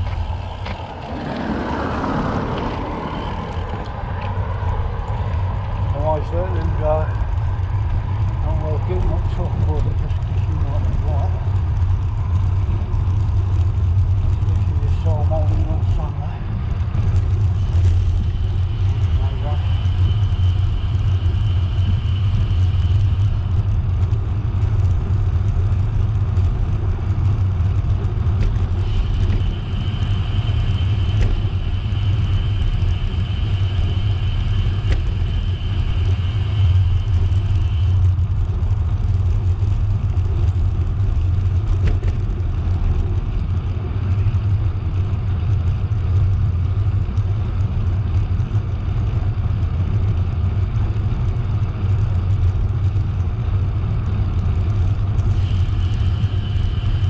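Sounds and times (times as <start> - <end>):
wind buffeting microphone: 0.0 - 56.9
bicycle tyres on path: 0.0 - 57.0
thin high whine: 14.9 - 24.0, 28.6 - 39.3, 55.2 - 57.0.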